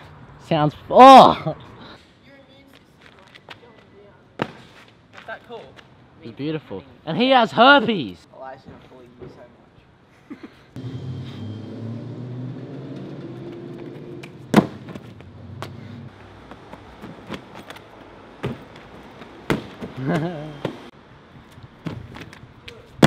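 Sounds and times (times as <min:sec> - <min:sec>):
feet and hands slapping pavement: 0:02.6 - 0:06.0, 0:13.5 - 0:20.8, 0:21.4 - 0:23.0
low vehicle rumble: 0:10.8 - 0:17.2.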